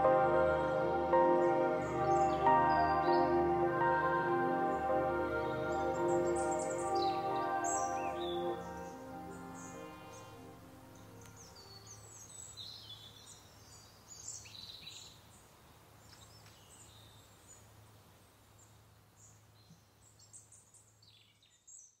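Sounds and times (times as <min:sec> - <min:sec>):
birds chirping and twittering: 0:00.0 - 0:15.4.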